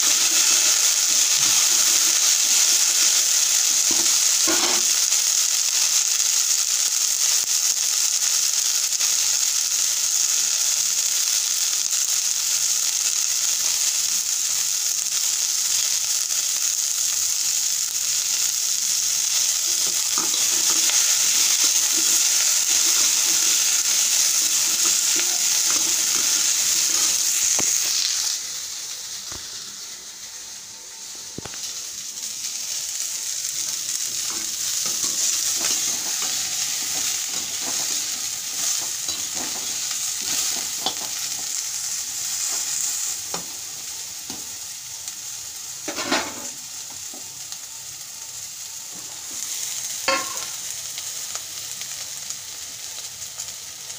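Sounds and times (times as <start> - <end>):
vegetables sizzling in a pan: 0.0 - 53.9
utensil scraping pan: 34.3 - 41.2.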